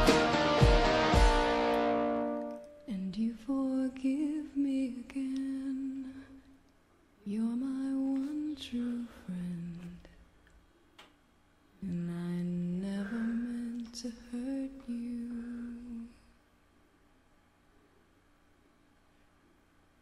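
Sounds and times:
band with guitar: 0:00.0 - 0:02.6
person singing softly: 0:02.6 - 0:06.6, 0:07.2 - 0:10.2, 0:11.8 - 0:16.4.

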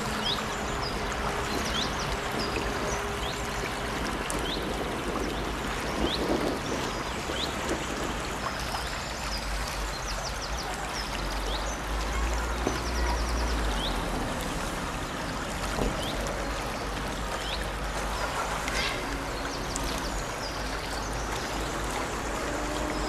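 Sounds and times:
brook babbling: 0:00.0 - 0:23.0
birds chirping: 0:14.9 - 0:23.0.

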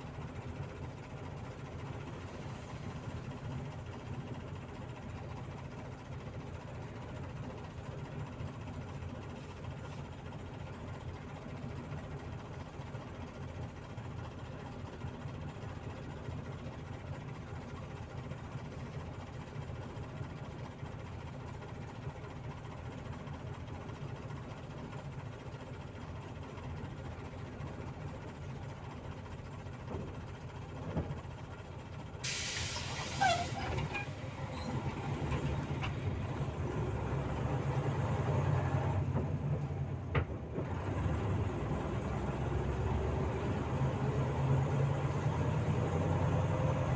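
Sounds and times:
bus diesel engine: 0:00.0 - 0:46.9
compressed air hissing: 0:32.2 - 0:33.6.

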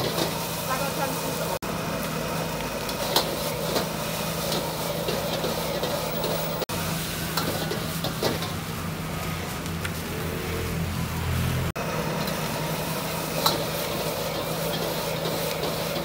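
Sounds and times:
metal ladle scraping wok: 0:00.0 - 0:01.6, 0:12.1 - 0:16.0
food sizzling in wok: 0:00.0 - 0:16.0.

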